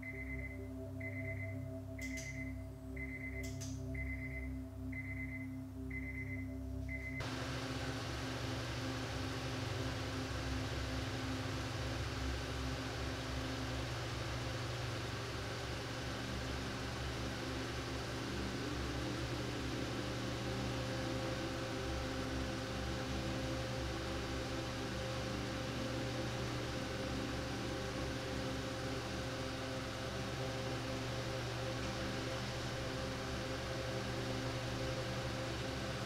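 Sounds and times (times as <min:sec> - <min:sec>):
car engine idling: 0:07.2 - 0:36.0.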